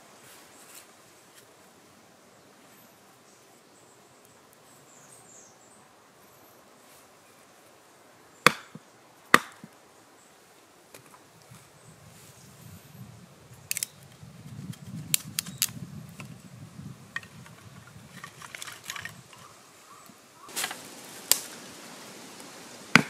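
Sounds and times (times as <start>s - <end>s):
knife splitting wooden stick: 8.5s - 9.7s.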